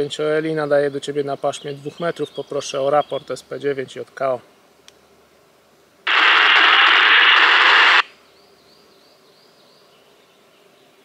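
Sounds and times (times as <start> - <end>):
radio static burst: 6.1 - 8.1.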